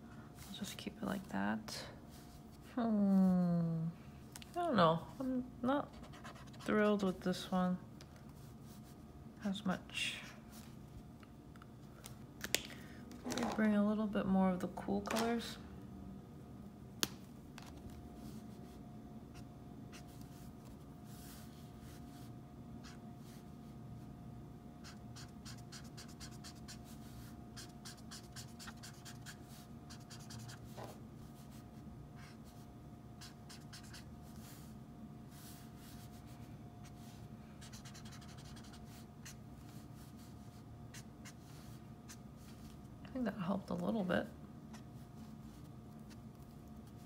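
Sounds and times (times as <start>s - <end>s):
marker scratching on paper: 24.8s - 27.0s, 27.6s - 31.0s, 33.2s - 34.5s, 37.6s - 39.4s.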